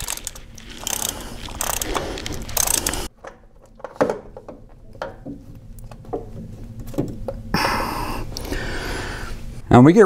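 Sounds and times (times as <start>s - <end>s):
hand ratchet clicking: 0.0s - 3.1s.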